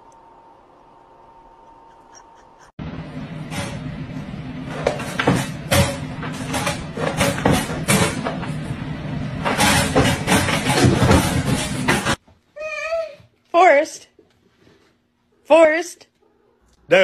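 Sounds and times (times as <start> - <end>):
pet crate knocking and rattling: 9.4 - 12.2.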